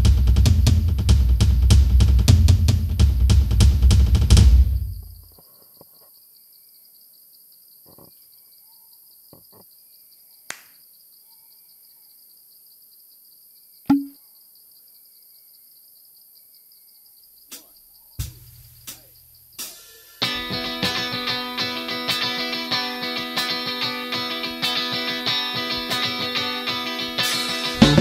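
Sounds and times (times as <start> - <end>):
sharp knocks: 13.9 - 14.2.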